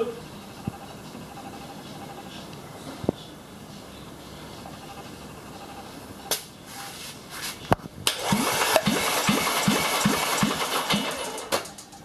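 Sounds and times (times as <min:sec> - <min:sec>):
engine cranking: 0:08.1 - 0:12.0.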